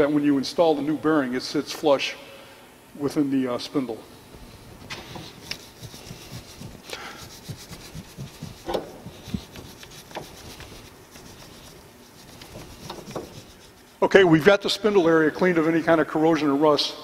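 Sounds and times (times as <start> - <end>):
rasping scraping of rust: 4.9 - 14.1.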